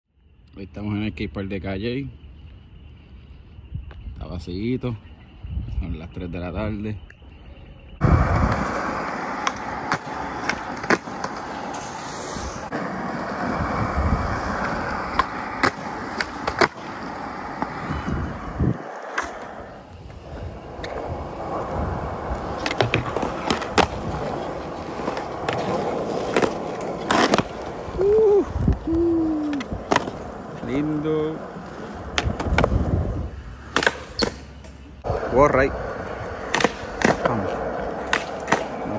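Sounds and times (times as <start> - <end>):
skateboard wheels rolling on concrete: 0.2 - 38.9
skateboard clacking on ground: 8.2 - 17.9, 18.8 - 27.9, 29.4 - 30.7, 31.4 - 32.8, 33.6 - 35.3, 36.3 - 38.9.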